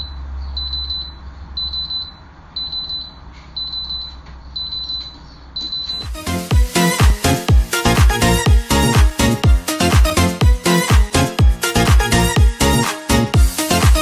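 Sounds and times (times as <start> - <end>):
electronic alarm beeping: 0.0 - 6.2
music with strong beat: 5.9 - 14.0.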